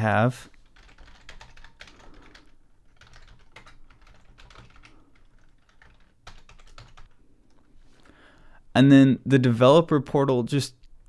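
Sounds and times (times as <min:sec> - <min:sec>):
typing on computer keyboard: 0:00.6 - 0:07.2.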